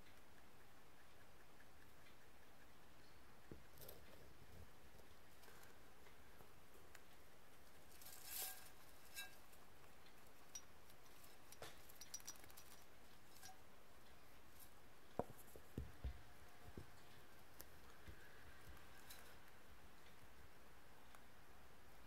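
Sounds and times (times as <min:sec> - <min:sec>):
rabbits nibbling hay: 0:00.1 - 0:22.0
rustling in wire cage: 0:07.6 - 0:13.6.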